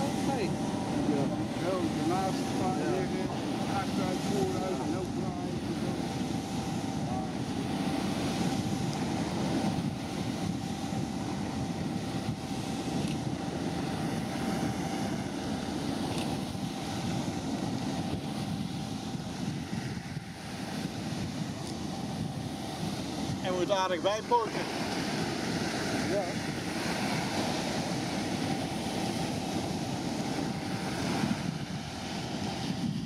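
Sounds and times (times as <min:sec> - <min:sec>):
wind buffeting microphone: 0:00.0 - 0:33.0
water wash: 0:23.4 - 0:33.0.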